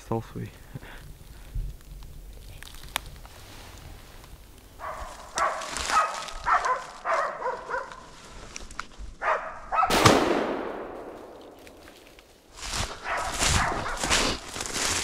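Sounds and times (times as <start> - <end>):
dogs barking: 4.8 - 8.0, 9.2 - 9.9, 13.0 - 14.1
gunshot echoing: 9.9 - 12.0.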